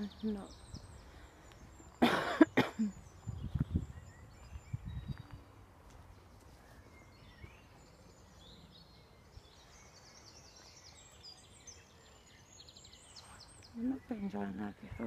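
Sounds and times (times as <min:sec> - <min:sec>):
birds chirping and whistling: 0:00.0 - 0:15.0.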